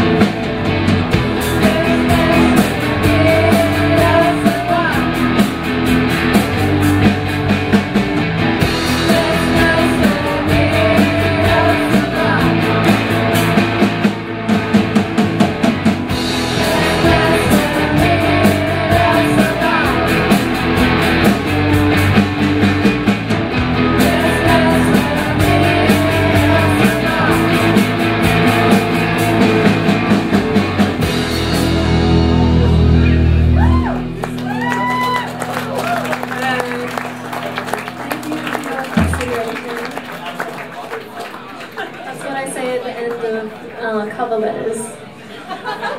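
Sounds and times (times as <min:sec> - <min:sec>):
bass guitar: 0:00.0 - 0:40.0
drum kit beat: 0:00.0 - 0:40.2
electric guitars: 0:00.0 - 0:42.0
person singing: 0:01.3 - 0:05.5, 0:08.9 - 0:13.6, 0:16.4 - 0:20.6, 0:23.8 - 0:29.9.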